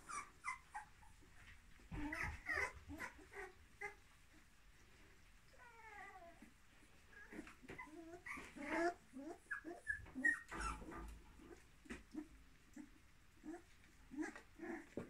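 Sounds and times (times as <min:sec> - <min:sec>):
puppies whimpering and yipping: 0:00.0 - 0:04.1, 0:07.1 - 0:15.0.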